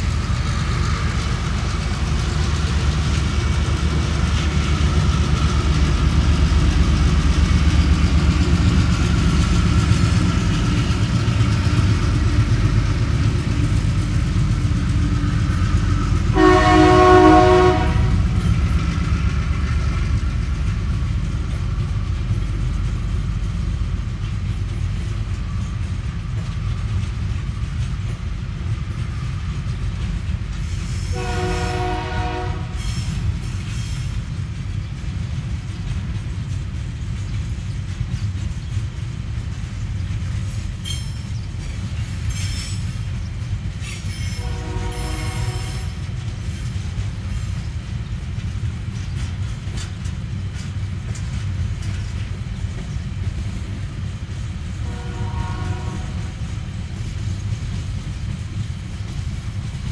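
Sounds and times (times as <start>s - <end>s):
diesel locomotive engines running: 0.0s - 59.9s
train wheels rumbling on rails: 0.0s - 59.9s
locomotive horn chord: 16.3s - 18.4s, 31.1s - 32.8s, 44.4s - 46.0s, 54.8s - 56.4s.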